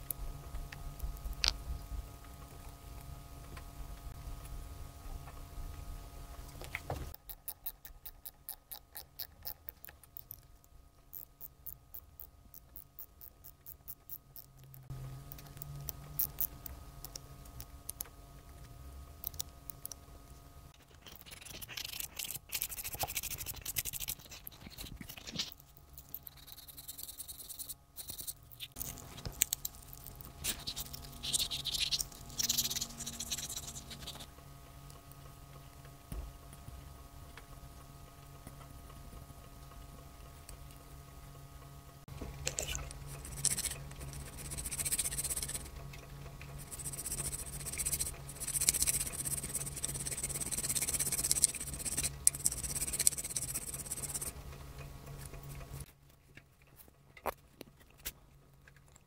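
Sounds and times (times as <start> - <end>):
sandpaper scratching metal: 46.6 - 54.3.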